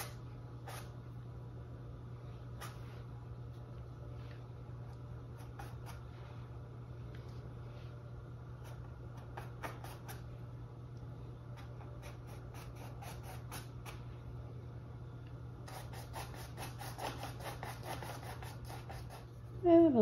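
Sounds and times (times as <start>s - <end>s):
paintbrush rubbing on canvas: 15.7s - 19.4s.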